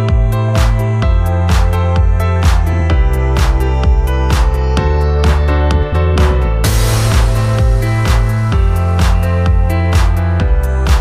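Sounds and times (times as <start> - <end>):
electronic music with steady beat: 0.0 - 11.0.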